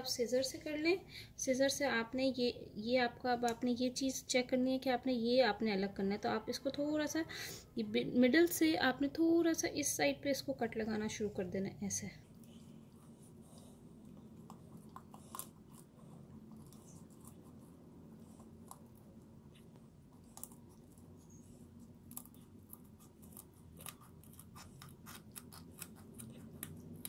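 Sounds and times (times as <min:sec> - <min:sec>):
scissors cutting chicken bones: 0:22.1 - 0:27.0.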